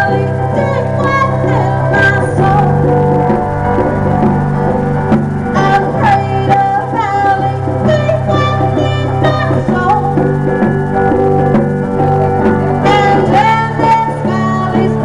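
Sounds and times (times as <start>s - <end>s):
person singing: 0.0s - 4.2s, 5.5s - 10.4s, 12.8s - 15.0s
electric guitar: 0.0s - 15.0s.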